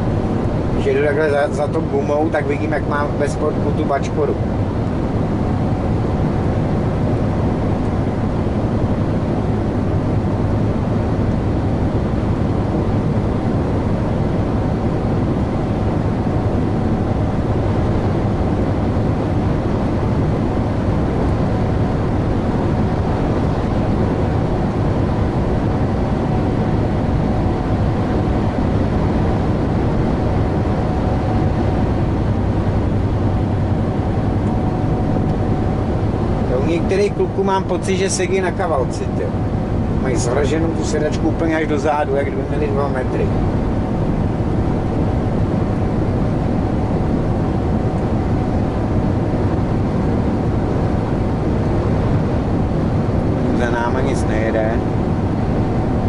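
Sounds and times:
road noise: 20.3s - 46.6s.

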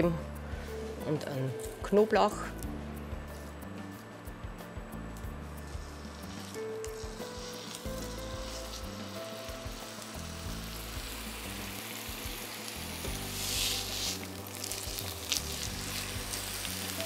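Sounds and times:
steak sizzling in a frying pan: 5.7s - 17.0s.

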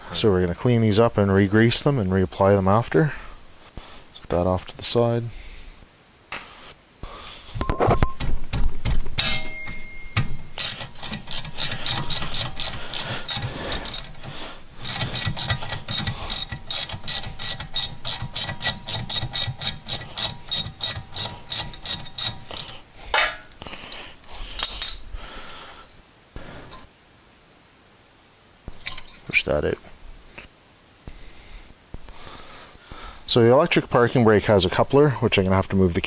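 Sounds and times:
tool knocks: 8.0s - 10.5s
hand ratchet clicking: 8.5s - 9.5s, 10.2s - 25.0s.

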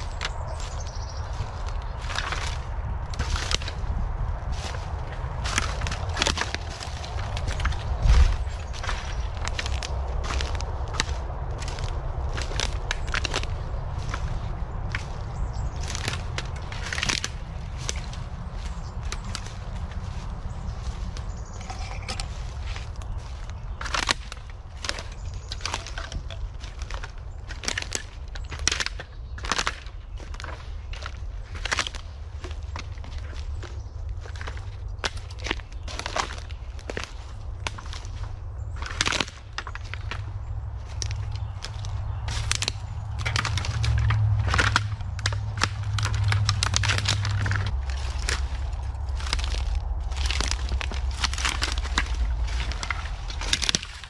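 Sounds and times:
low rumble: 0.0s - 27.0s, 39.8s - 54.0s
footsteps crunching dry leaves: 0.0s - 54.0s
dead canes snapping: 5.4s - 14.3s, 15.8s - 18.2s, 23.8s - 33.7s, 38.8s - 54.0s.

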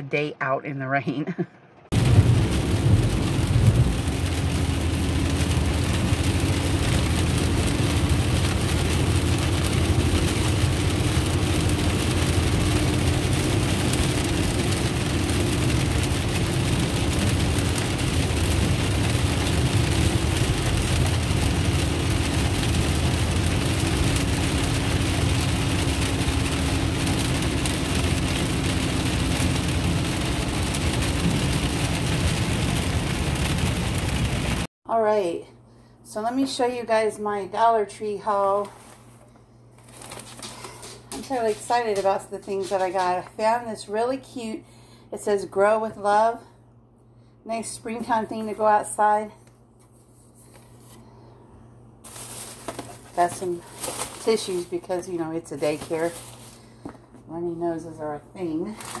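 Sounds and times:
car engine and tyre rumble: 1.9s - 34.7s
faint steady hum: 34.9s - 41.7s, 43.2s - 58.9s.

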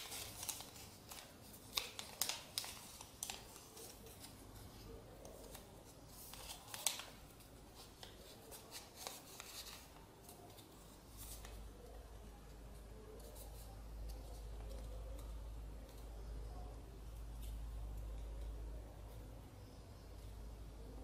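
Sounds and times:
paper crinkling and rustling: 0.0s - 12.0s.

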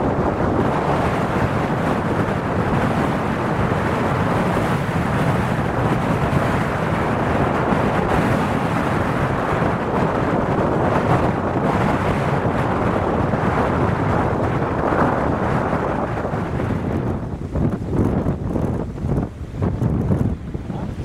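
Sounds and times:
jet engines rumbling: 0.0s - 21.0s
wind buffeting microphone: 0.0s - 21.0s.

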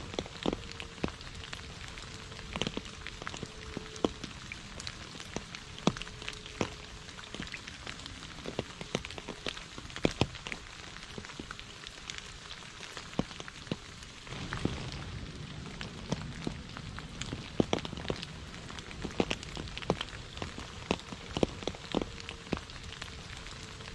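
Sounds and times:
rain on puddles and leaves: 0.0s - 23.9s
low rumble: 14.2s - 23.9s.

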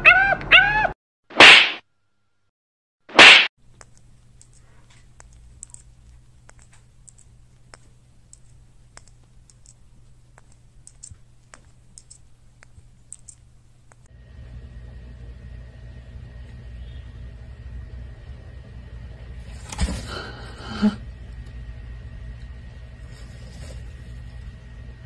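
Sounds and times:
light clicks and taps: 3.7s - 14.1s.

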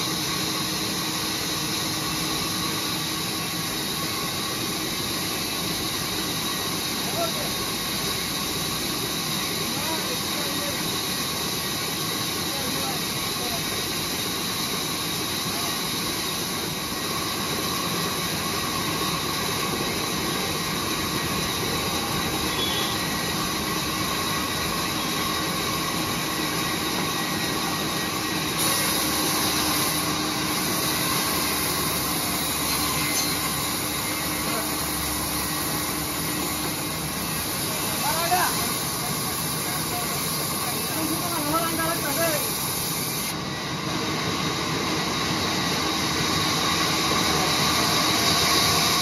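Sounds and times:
band saw cutting wood: 26.6s - 42.2s.

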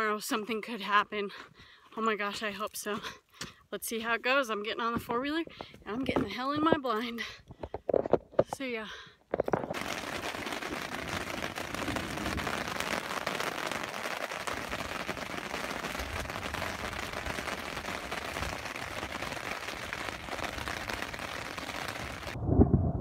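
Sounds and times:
rain on fabric: 9.6s - 22.4s.

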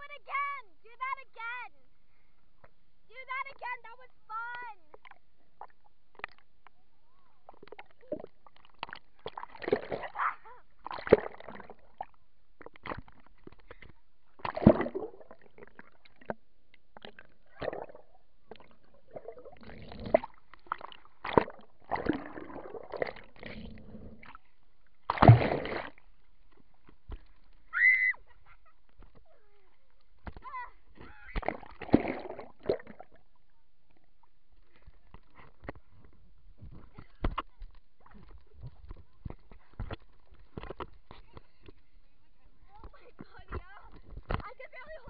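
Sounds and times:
muffled underwater water sloshing: 4.9s - 45.0s
water splash: 7.6s - 12.1s, 14.4s - 16.4s, 17.0s - 24.4s, 25.0s - 26.1s, 31.3s - 33.3s.

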